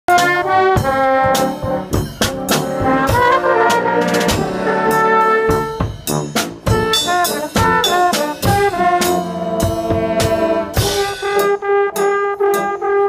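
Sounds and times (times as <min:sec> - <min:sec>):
trumpets and saxophone: 0:00.1 - 0:13.0
bass drum hits: 0:04.2 - 0:11.2.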